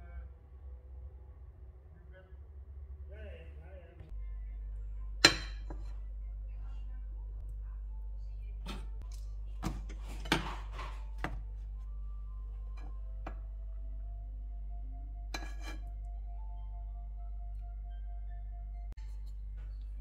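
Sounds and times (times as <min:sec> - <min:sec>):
fork clinking and scraping on pan: 0:08.6 - 0:11.4, 0:15.3 - 0:15.9.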